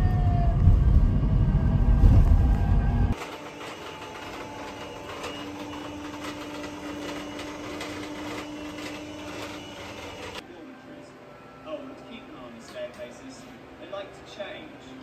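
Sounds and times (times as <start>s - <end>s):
robot vacuum whirring: 3.1s - 10.4s.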